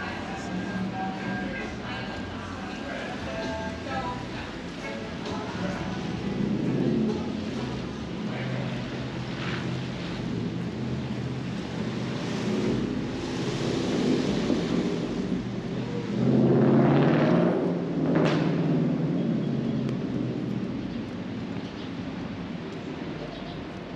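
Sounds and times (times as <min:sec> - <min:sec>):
low engine hum: 0:00.0 - 0:23.9
rain: 0:00.0 - 0:23.9
traffic on wet road: 0:00.0 - 0:23.9
vehicle passing on wet road: 0:05.4 - 0:23.2.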